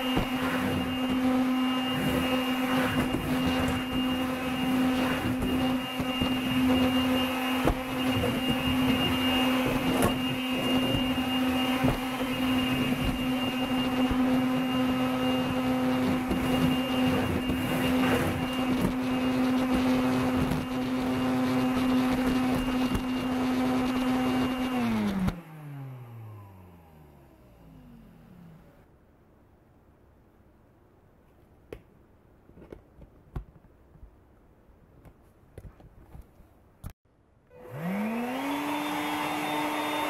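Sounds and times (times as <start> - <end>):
stick vacuum motor whining: 0.0 - 28.7, 37.5 - 40.0
vacuum motor winding down: 0.0 - 28.8, 37.5 - 40.0.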